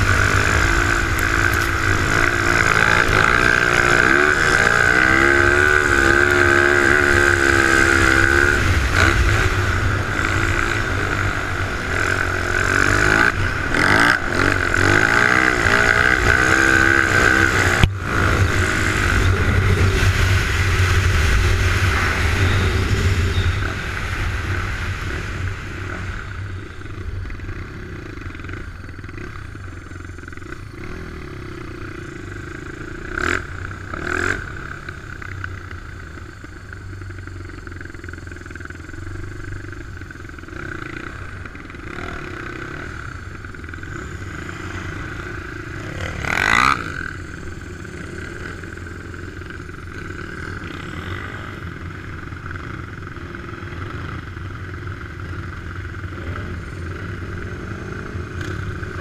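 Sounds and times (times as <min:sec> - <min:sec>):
engine revving: 0:00.0 - 0:35.0, 0:40.4 - 0:59.0
quad bike engine running: 0:00.0 - 0:59.0.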